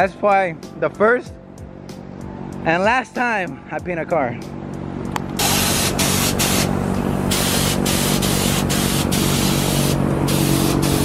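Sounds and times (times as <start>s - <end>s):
steady low hum: 4.4s - 11.0s
paint spray gun hissing: 5.4s - 11.0s.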